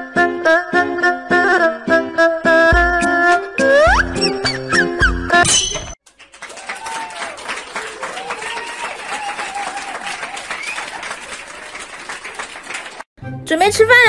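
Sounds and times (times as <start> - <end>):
many hands clapping: 6.0 - 13.1.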